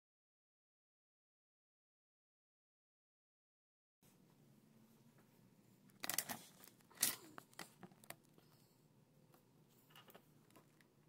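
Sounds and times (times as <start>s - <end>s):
rustling and clicking handling noises: 5.2s - 8.7s, 9.3s - 11.0s.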